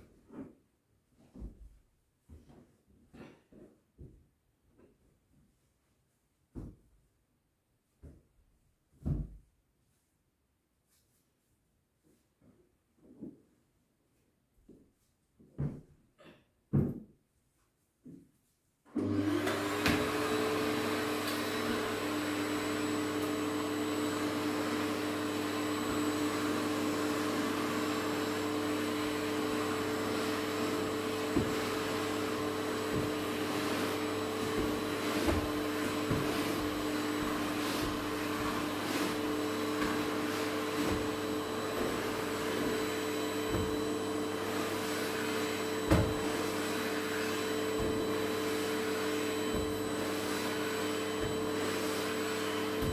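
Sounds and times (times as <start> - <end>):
vacuum cleaner motor whine: 18.9 - 52.9.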